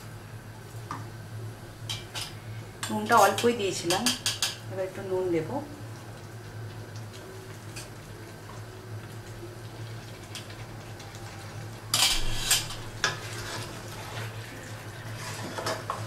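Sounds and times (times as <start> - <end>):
steady low hum: 0.0 - 16.0
spatula scraping a pot: 12.0 - 14.3, 15.1 - 16.0.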